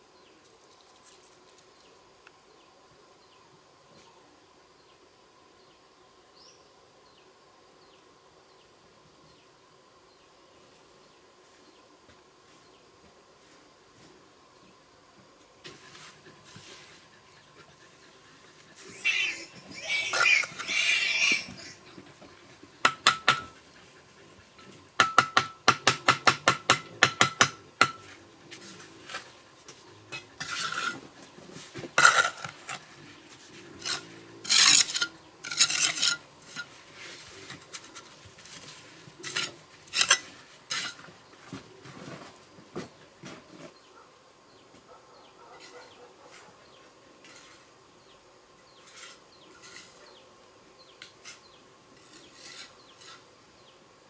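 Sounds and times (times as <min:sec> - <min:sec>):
trowel scraping mortar: 0:30.1 - 0:32.8, 0:33.7 - 0:41.1, 0:47.2 - 0:47.7, 0:48.8 - 0:50.2, 0:51.2 - 0:53.3.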